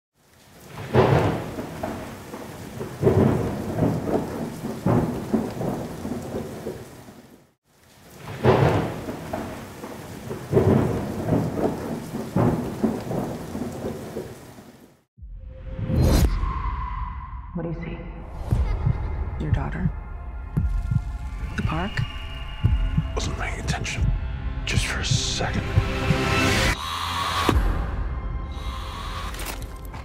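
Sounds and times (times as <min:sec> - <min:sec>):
steady rain: 0:00.2 - 0:15.1, 0:20.6 - 0:24.1, 0:28.6 - 0:30.0
thunder crashes: 0:00.7 - 0:06.9, 0:08.2 - 0:14.3.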